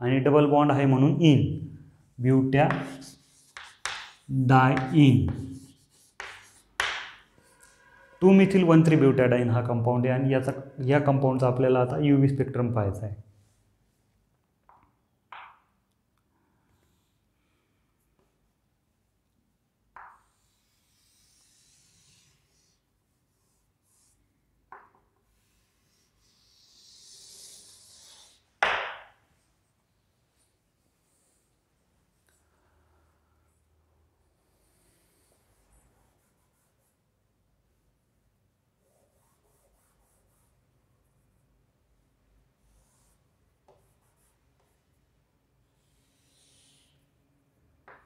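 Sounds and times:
chalk scraping on a chalkboard: 2.7 - 7.9, 20.0 - 24.2, 25.2 - 28.5, 34.5 - 37.1, 38.8 - 40.6, 42.6 - 44.9, 45.7 - 47.0.

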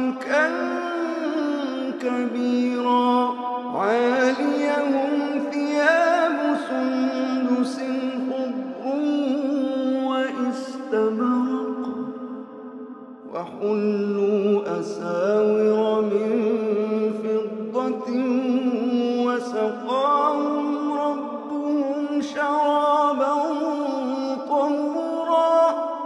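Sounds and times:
man chanting melodically: 0.0 - 12.4, 13.2 - 26.0.

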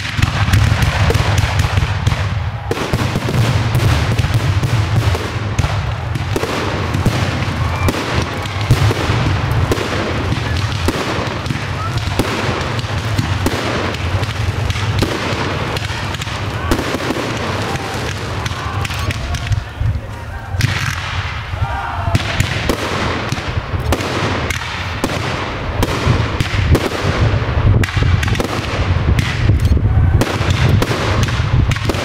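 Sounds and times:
fireworks bangs and crackling: 0.0 - 32.0.

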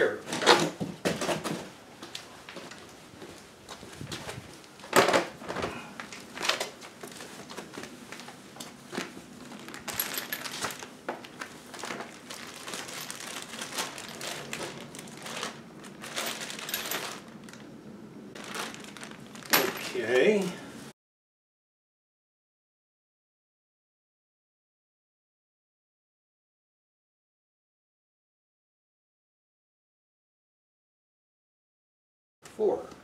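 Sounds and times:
plastic bag crinkling: 6.0 - 17.7, 18.4 - 20.5.

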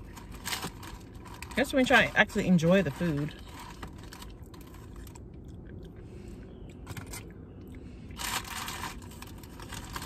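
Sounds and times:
paper box crackling: 0.0 - 5.2, 8.2 - 10.0
chewing crunchy food: 3.4 - 10.0.

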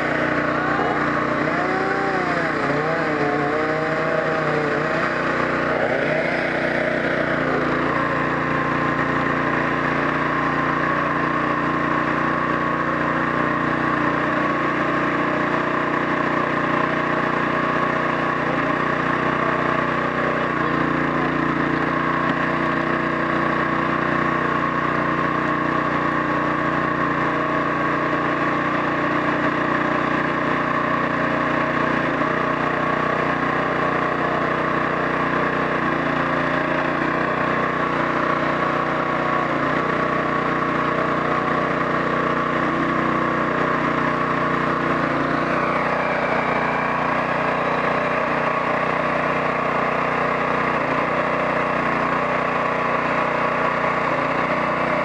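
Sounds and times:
gas engine running under load: 0.0 - 55.0.

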